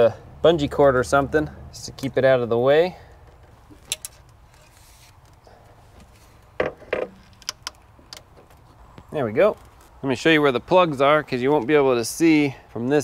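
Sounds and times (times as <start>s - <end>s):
metal part clicks and knocks: 3.7s - 4.7s, 6.6s - 8.6s.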